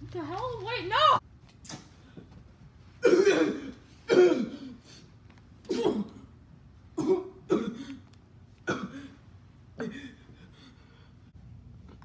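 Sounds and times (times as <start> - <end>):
person coughing: 3.0 - 4.9, 5.7 - 6.3, 7.0 - 9.2, 9.8 - 10.3.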